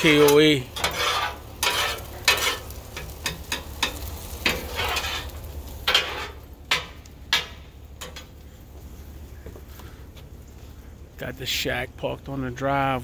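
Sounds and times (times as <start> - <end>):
metal spatulas scraping griddle: 0.0 - 8.3
fried rice sizzling: 0.0 - 13.0.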